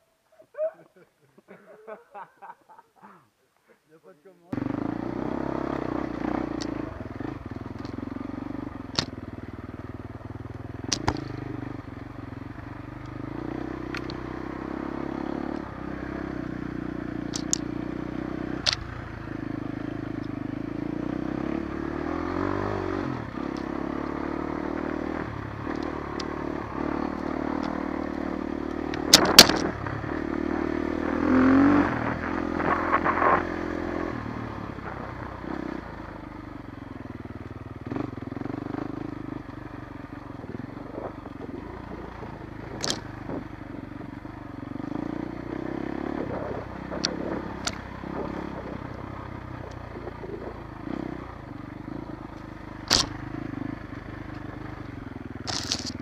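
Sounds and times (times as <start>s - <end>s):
motorcycle engine revving: 4.5s - 56.0s
sharp clicks and knocks: 8.9s - 9.1s, 10.9s - 11.5s, 17.3s - 17.7s, 18.6s - 18.9s, 28.9s - 29.7s, 42.8s - 43.1s, 47.0s - 47.8s, 52.9s - 53.2s, 55.5s - 56.0s.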